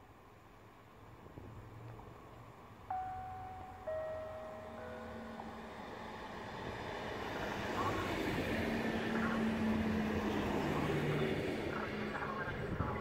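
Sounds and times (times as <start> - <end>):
two-note train horn: 2.9 - 6.1.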